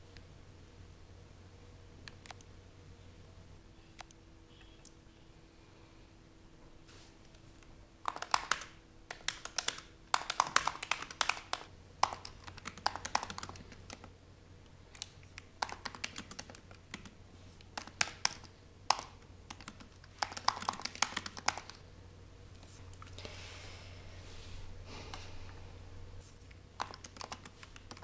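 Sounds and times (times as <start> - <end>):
laptop keyboard typing: 2.0 - 2.5, 8.0 - 14.1, 14.9 - 21.8, 26.8 - 28.0.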